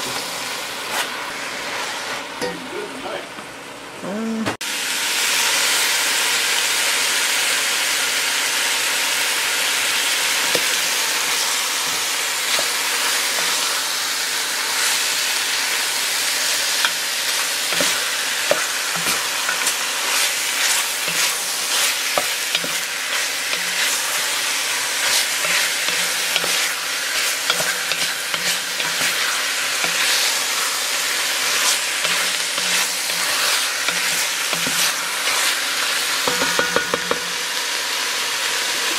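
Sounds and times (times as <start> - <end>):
meat sizzling in a pot: 0.0 - 3.6, 4.6 - 38.9
wooden spoon scraping a pot: 16.6 - 24.3, 25.0 - 30.7, 31.5 - 35.6.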